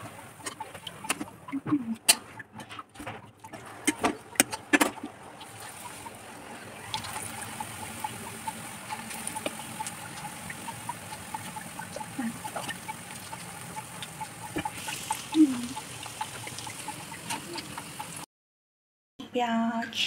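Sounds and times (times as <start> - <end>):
food sizzling in oil: 5.5 - 18.2.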